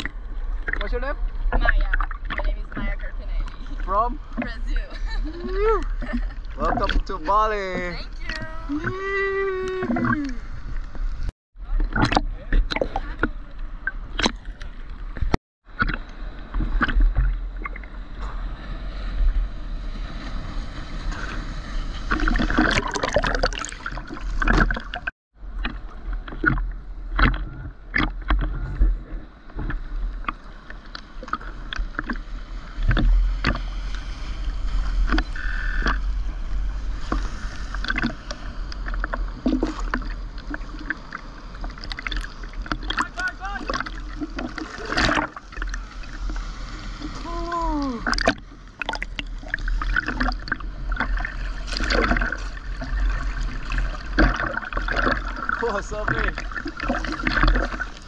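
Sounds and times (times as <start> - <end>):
water sloshing and lapping: 0.0 - 58.0
small splashes and knocks: 11.8 - 17.9, 22.1 - 28.6, 37.1 - 46.4, 47.0 - 58.0.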